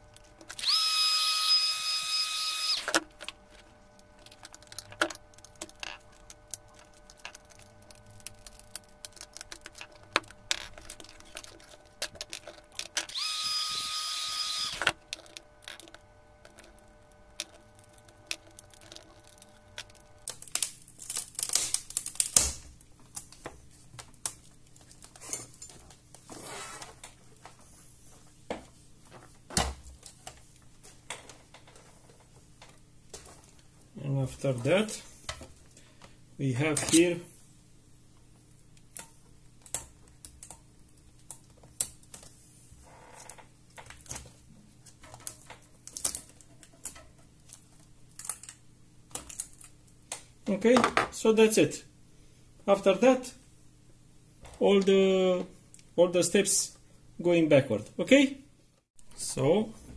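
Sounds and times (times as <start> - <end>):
handheld electric tool whining: 0.0 - 20.3.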